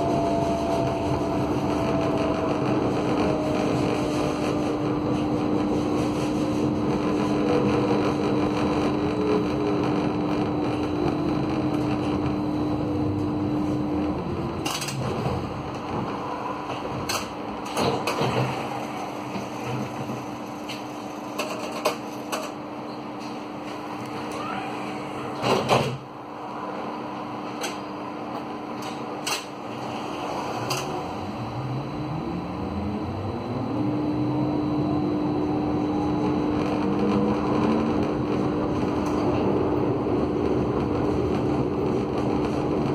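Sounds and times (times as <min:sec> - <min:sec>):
humming tone: 0:00.0 - 0:17.7, 0:30.2 - 0:42.9
tram rumble: 0:00.0 - 0:42.9.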